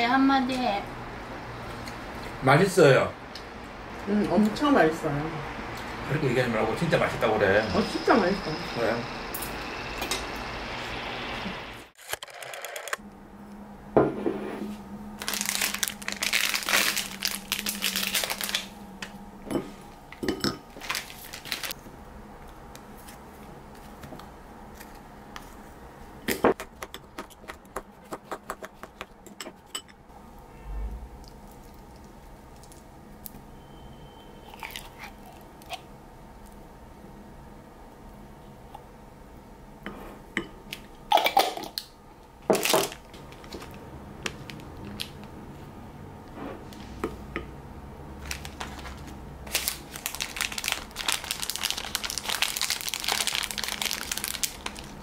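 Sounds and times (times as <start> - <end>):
wrapper crinkling and tearing: 15.2 - 18.8, 20.8 - 21.8, 42.6 - 43.7, 48.2 - 55.0.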